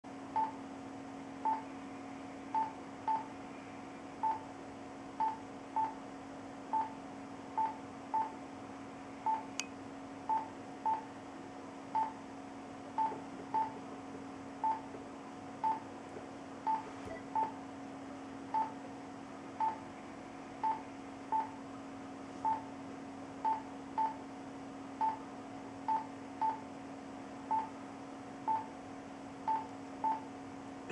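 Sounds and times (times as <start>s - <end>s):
steady low hum: 0.1s - 30.9s
heart monitor beeping: 0.4s - 0.6s, 1.4s - 1.7s, 2.5s - 3.3s, 4.2s - 4.5s, 5.2s - 6.0s, 6.7s - 7.0s, 7.6s - 8.4s, 10.3s - 11.1s, 11.9s - 12.2s, 12.9s - 13.8s, 14.6s - 15.0s, 15.6s - 15.9s, 16.6s - 17.6s, 18.5s - 18.8s, 19.6s - 19.8s, 20.6s - 21.6s, 22.4s - 22.7s, 23.4s - 24.2s, 25.0s - 25.2s, 25.9s - 26.6s, 27.5s - 27.7s, 28.5s - 28.7s, 29.5s - 30.3s.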